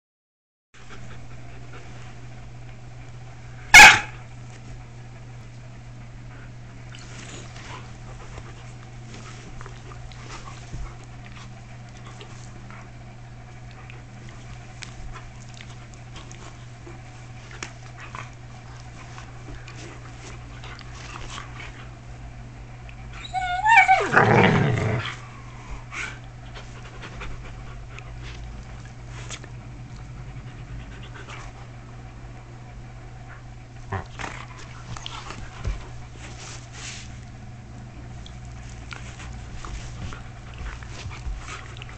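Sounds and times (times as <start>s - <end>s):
puppies rustling and scuffling: 6.4s - 23.4s, 25.0s - 31.8s, 33.3s - 41.9s
dog growl-whine: 23.1s - 26.0s.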